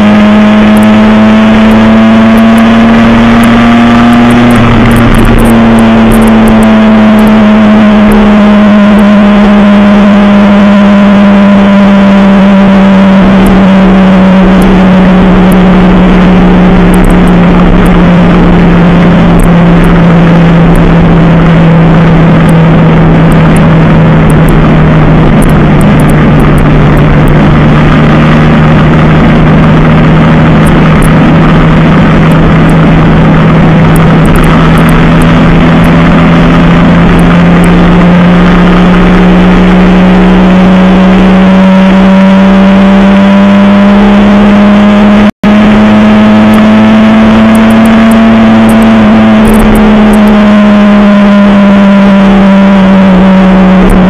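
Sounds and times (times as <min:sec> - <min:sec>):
motorcycle engine at high revs: 0:00.0 - 0:54.0
wind rush: 0:02.9 - 0:09.0, 0:13.0 - 0:40.5.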